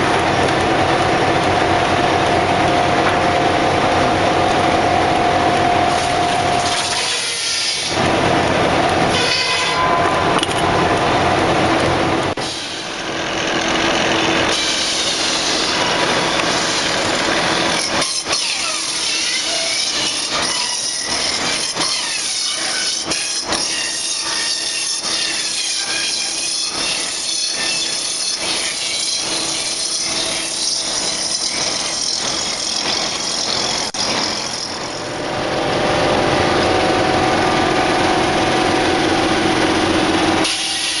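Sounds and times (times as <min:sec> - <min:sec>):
rounding saw high whine: 0:00.0 - 0:41.0
saw cutting pine block: 0:05.8 - 0:08.3, 0:09.0 - 0:10.6, 0:12.3 - 0:34.8, 0:40.4 - 0:41.0.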